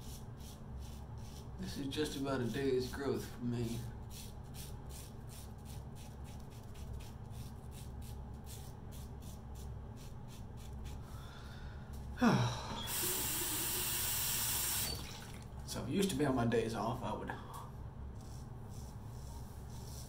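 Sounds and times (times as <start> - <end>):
razor scraping stubble: 0.0 - 11.0.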